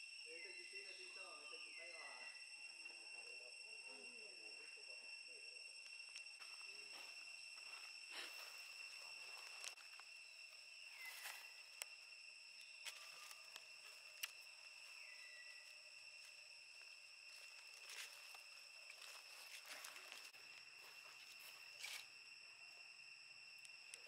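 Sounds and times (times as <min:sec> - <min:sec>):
insects buzzing: 0:00.0 - 0:24.0.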